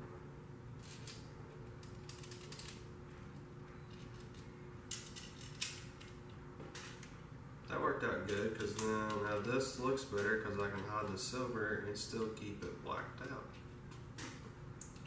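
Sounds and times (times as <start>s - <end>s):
small metal parts clicking: 1.8s - 2.8s, 3.9s - 6.2s.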